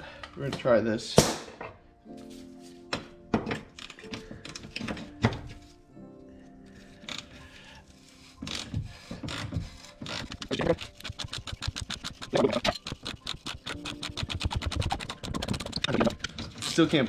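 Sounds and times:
ratcheting wrench clicking: 10.1 - 17.0.

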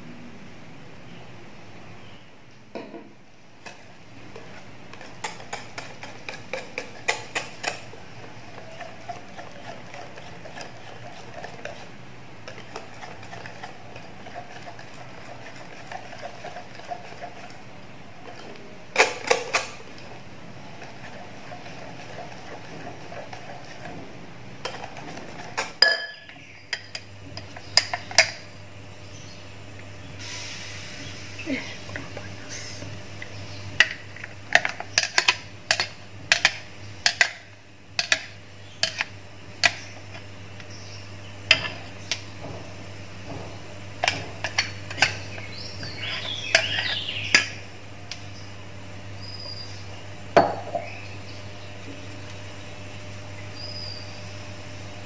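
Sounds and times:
whisk swishing batter: 4.3 - 18.5, 20.6 - 25.6.

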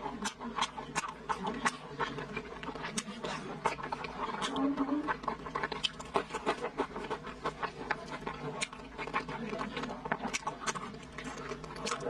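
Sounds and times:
person chewing with lip-smacking: 0.0 - 12.0.

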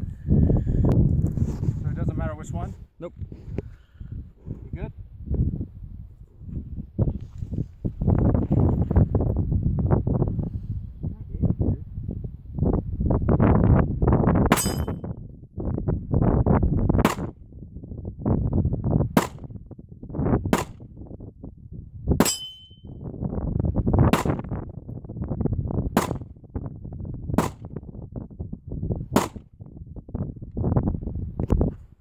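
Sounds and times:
brief metallic ring: 14.6 - 15.0, 22.2 - 22.9
pistol shots: 17.0 - 17.3.

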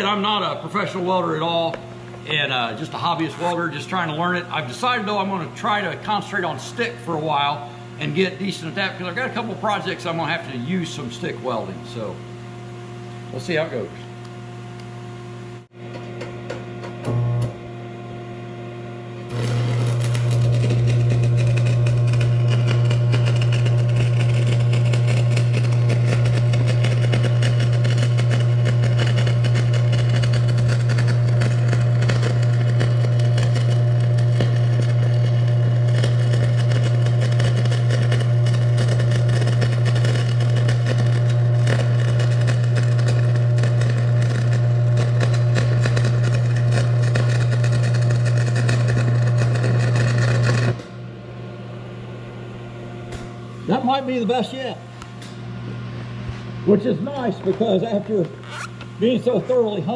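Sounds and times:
welder transformer buzz: 0.0 - 59.9
welding arc crackle: 19.3 - 50.9.

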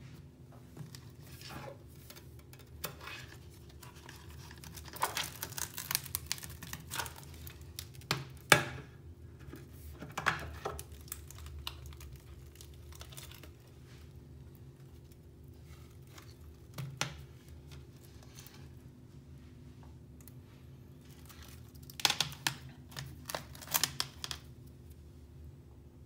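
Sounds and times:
tablet creaking and crackling: 0.8 - 8.6, 9.6 - 18.8, 21.0 - 24.7.

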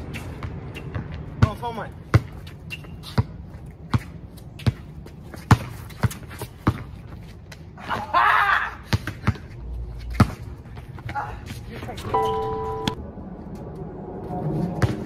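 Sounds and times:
basketball bouncing on court: 0.4 - 2.4, 3.1 - 7.0.

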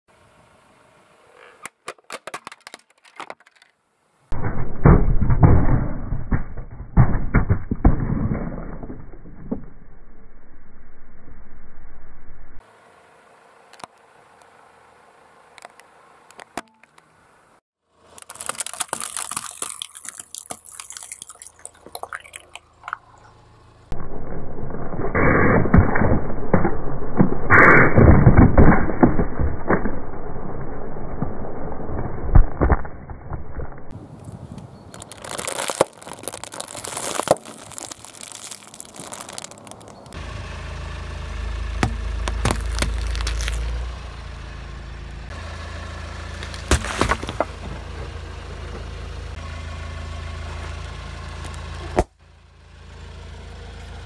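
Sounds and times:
plastic mask cracking under tyre: 1.6 - 3.8, 18.1 - 22.4, 34.2 - 40.2, 41.8 - 43.8, 46.3 - 47.6
dense crunching with heavy thumps: 4.3 - 10.0, 35.0 - 40.2, 41.8 - 43.8, 46.4 - 47.9
squelching jelly and liquid: 18.1 - 23.1, 34.9 - 40.1
muffled popping and splattering: 18.2 - 23.2, 34.9 - 40.0.

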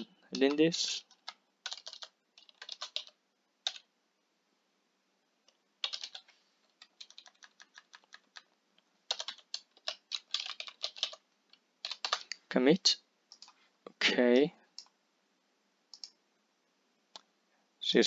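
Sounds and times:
keyboard typing: 0.0 - 3.9, 5.4 - 12.4, 13.3 - 13.6, 14.7 - 15.0, 15.9 - 16.2.

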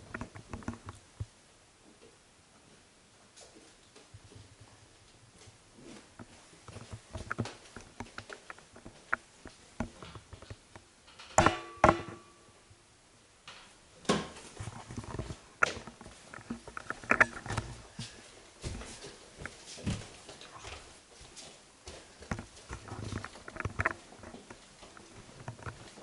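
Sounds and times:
sharp knocks: 11.3 - 12.3
footsteps: 14.3 - 26.0.

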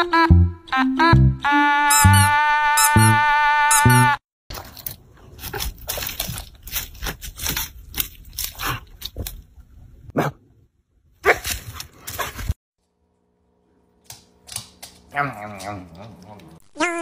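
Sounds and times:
dog crunching dry leaves: 5.3 - 8.6.

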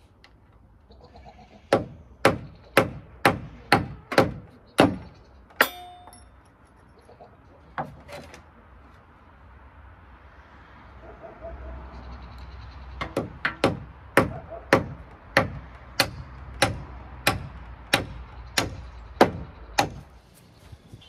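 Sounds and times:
hammer striking wood: 1.7 - 6.2, 13.0 - 20.0.

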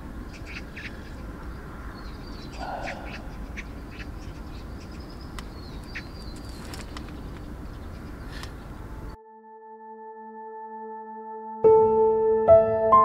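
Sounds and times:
birds chirping: 0.0 - 9.2
low outdoor rumble: 0.0 - 9.2
soft ambient music: 6.6 - 13.0.

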